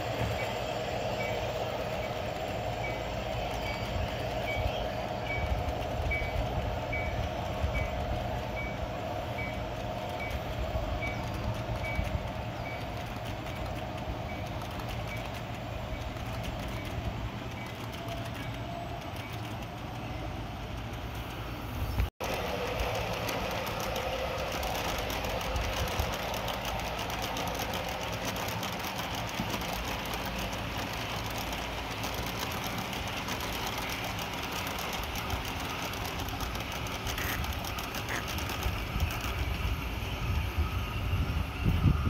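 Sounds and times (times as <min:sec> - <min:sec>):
low rumble of rolling train: 0:00.0 - 0:42.0
train wheels clicking on track: 0:00.0 - 0:42.0.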